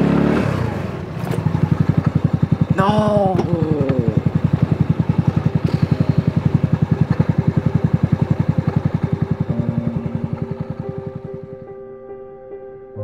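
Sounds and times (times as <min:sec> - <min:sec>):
buggy engine idling: 0:00.0 - 0:11.9
soft sustained music notes: 0:04.1 - 0:13.0.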